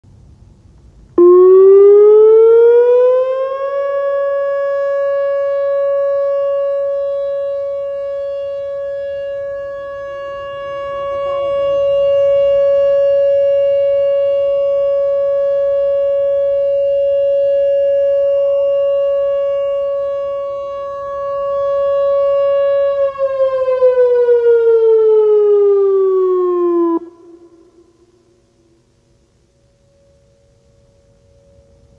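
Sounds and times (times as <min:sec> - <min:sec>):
warning siren steady tone: 0:01.2 - 0:31.9.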